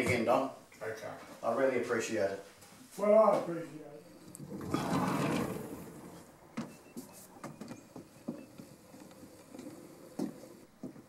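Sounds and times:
footsteps tapping: 6.6s - 11.0s.

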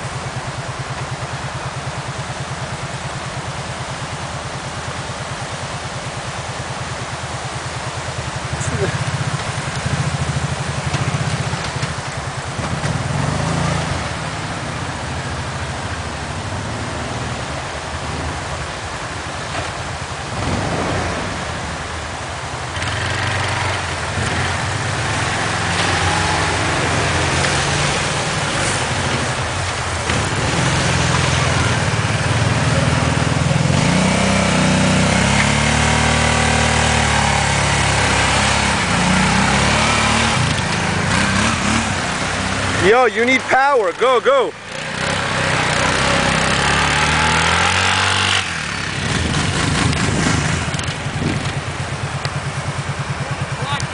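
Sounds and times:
quad bike engine revving: 8.5s - 14.6s, 20.3s - 21.8s, 22.7s - 53.9s.

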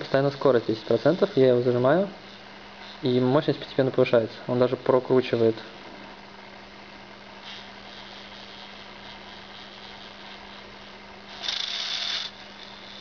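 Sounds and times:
motor hissing whir: 7.4s - 13.0s
servo motor humming: 7.4s - 13.0s.

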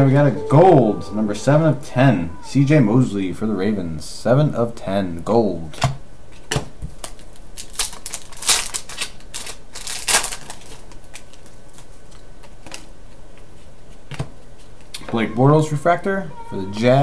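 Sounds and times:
foil wrappers crinkling: 6.9s - 12.9s.

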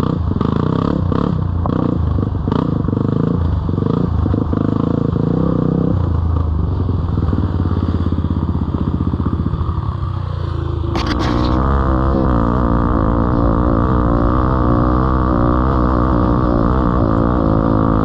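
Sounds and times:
dirt bike engine chugging: 0.0s - 18.0s
sharp clicks: 11.0s - 11.8s.

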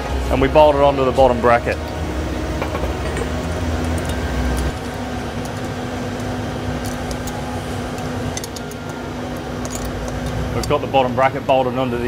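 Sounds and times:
mechanical hum: 0.0s - 12.0s
spanner clicking on bolts: 3.9s - 10.8s.

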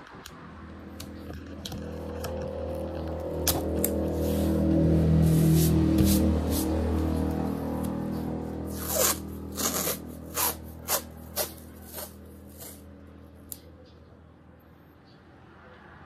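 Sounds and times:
scratchy rubbing strokes: 3.9s - 12.9s.

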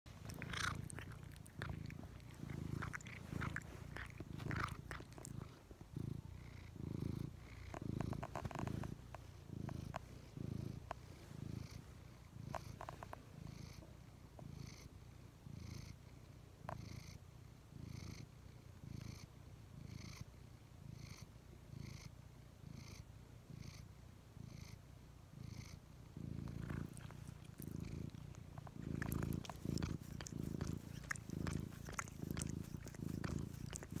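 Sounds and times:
cat purring: 0.0s - 34.0s.

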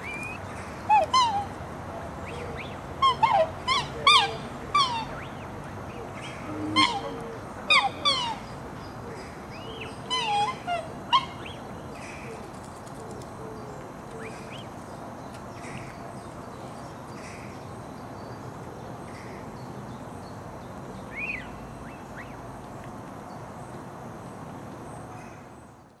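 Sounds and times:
steady background hiss: 0.0s - 26.0s
cygnets peeping: 2.2s - 11.6s, 21.0s - 22.4s.

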